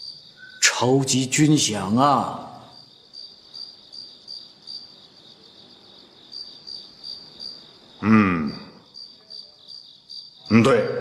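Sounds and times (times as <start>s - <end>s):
crickets chirping: 0.0s - 11.0s
man murmuring: 8.0s - 8.8s, 10.5s - 11.0s.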